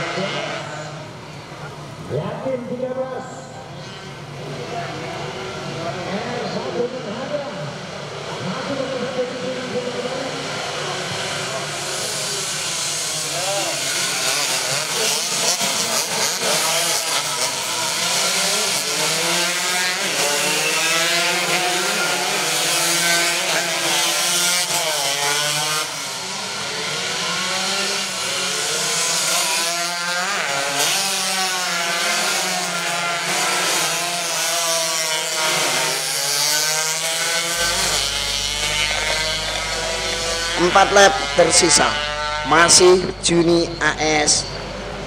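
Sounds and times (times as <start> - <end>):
race motorcycles revving: 0.0 - 45.0.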